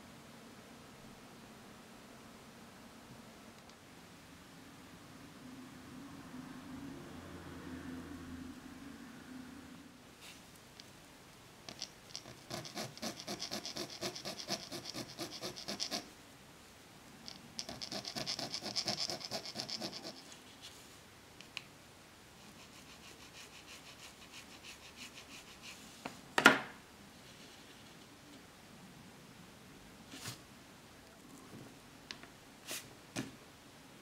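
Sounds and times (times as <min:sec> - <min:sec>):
hand file scraping plastic: 0:11.7 - 0:16.0.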